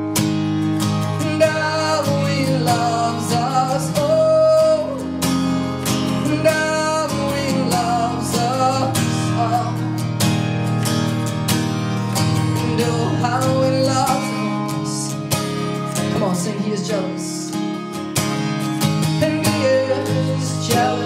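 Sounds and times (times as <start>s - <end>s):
acoustic guitar strumming: 0.0s - 21.0s
man singing: 1.1s - 10.1s, 12.2s - 17.8s, 19.1s - 21.0s.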